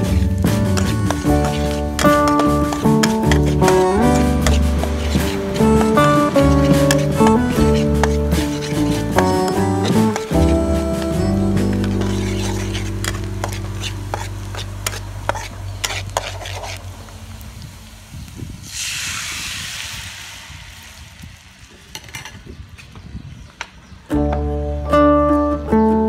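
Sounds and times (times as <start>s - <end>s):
garlic frying in oil: 0.0s - 10.6s, 11.8s - 22.4s
liquid sizzling in hot wok: 0.0s - 10.6s, 11.6s - 22.4s
spatula scraping in a wok: 0.0s - 17.1s.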